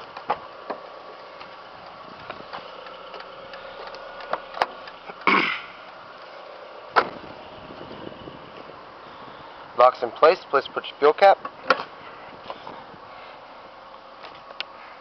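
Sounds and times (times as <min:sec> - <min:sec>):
car engine idling faintly: 0:00.0 - 0:15.0.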